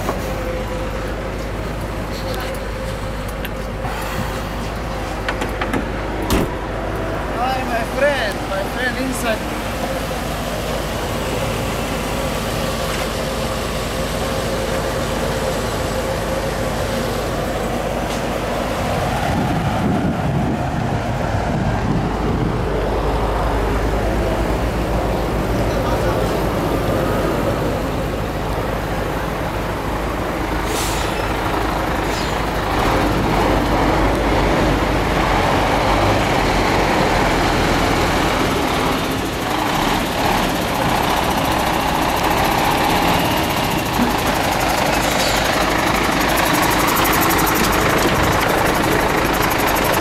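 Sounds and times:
car engine idling: 21.5s - 50.0s.

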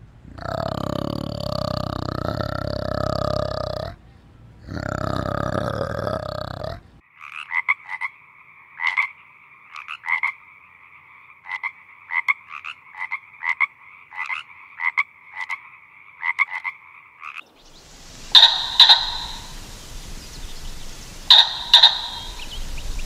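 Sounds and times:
frog croaking: 0.3s - 4.0s, 4.6s - 23.0s
orangutan long calls: 0.3s - 4.0s, 4.6s - 6.8s, 17.7s - 23.0s.

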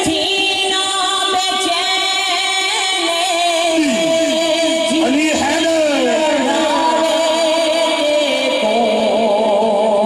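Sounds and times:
men singing over public address: 3.3s - 10.0s.

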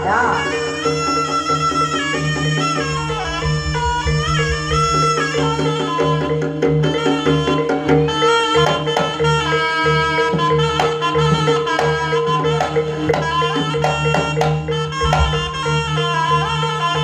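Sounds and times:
drums: 0.0s - 17.0s
reed pipe melody: 0.0s - 17.0s
sustained gong tones: 2.4s - 5.6s.

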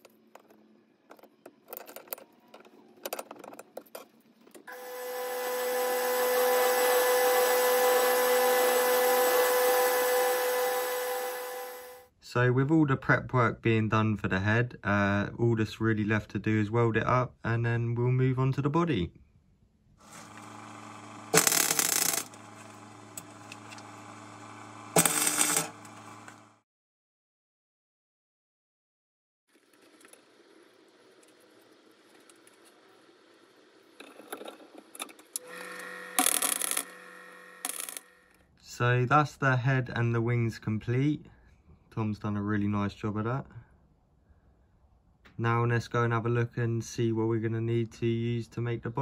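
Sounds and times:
metal lathe whine and cutting: 4.7s - 12.0s
welder arc crackling: 20.1s - 26.4s.

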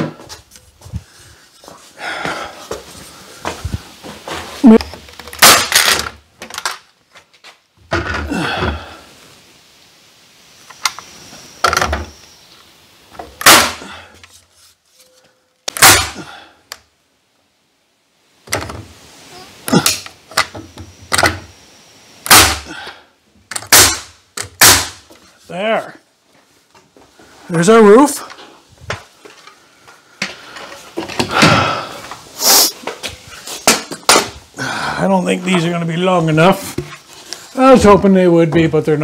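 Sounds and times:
pneumatic nail gun shots: 5.4s - 6.1s, 13.4s - 13.8s, 15.7s - 16.2s, 22.2s - 22.7s, 23.5s - 25.0s.

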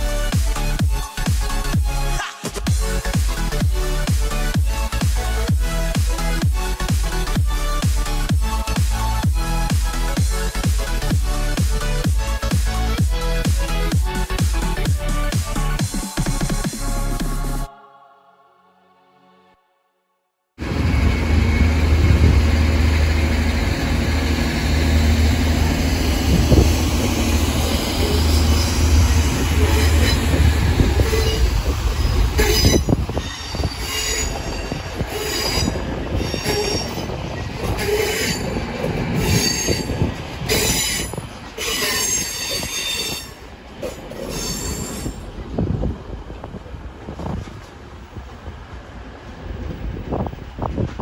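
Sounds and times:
train rumbling: 0.0s - 17.4s, 20.6s - 51.0s
train wheels squealing: 20.7s - 23.8s, 27.4s - 45.3s.

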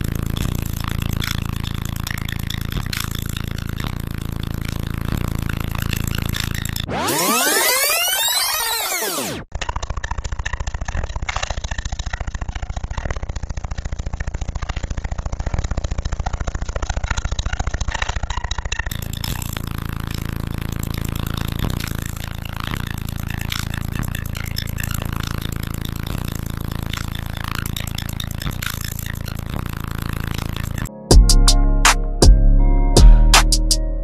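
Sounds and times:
subwoofers playing deep bass: 0.0s - 6.9s, 18.9s - 34.0s.

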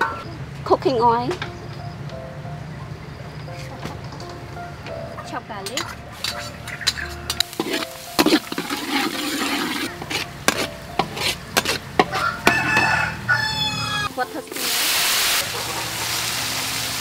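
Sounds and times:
metal spatula scraping wok: 5.6s - 13.2s
garlic sizzling in oil: 5.8s - 17.0s.

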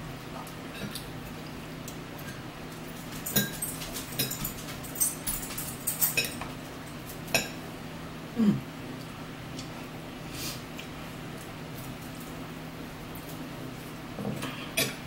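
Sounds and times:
steady low hum: 0.0s - 15.0s
fork clinking on a plate: 5.2s - 6.5s.

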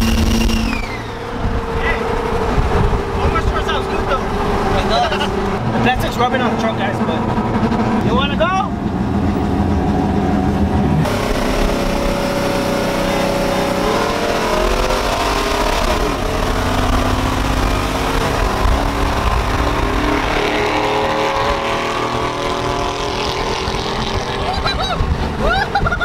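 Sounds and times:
wind noise: 0.0s - 6.2s, 13.3s - 26.0s
road noise: 0.0s - 26.0s
truck engine accelerating hard: 0.0s - 26.0s.

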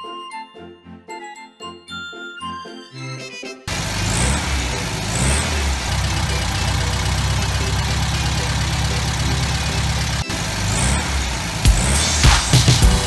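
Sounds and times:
car engine running: 3.7s - 13.0s.

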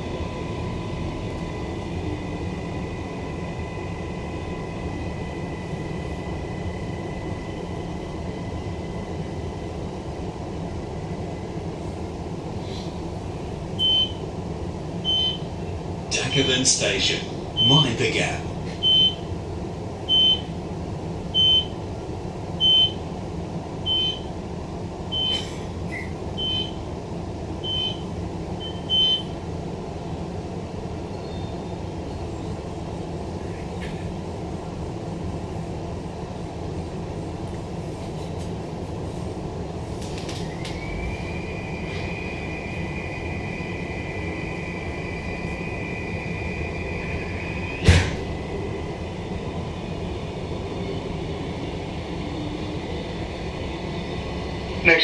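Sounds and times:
electric traction whine: 40.4s - 55.0s.

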